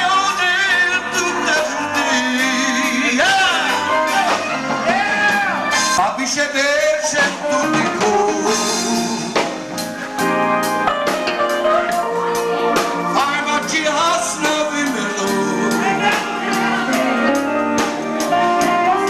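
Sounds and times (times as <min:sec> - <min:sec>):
man singing into a microphone: 0:00.0 - 0:04.2, 0:05.2 - 0:09.5, 0:13.1 - 0:17.0
drum kit beat: 0:00.0 - 0:19.0
electric bass guitar: 0:00.0 - 0:19.0.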